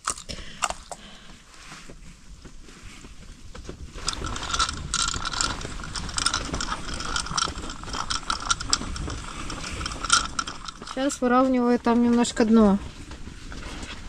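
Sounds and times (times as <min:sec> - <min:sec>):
fishing reel clicking rapidly: 0:04.0 - 0:11.3.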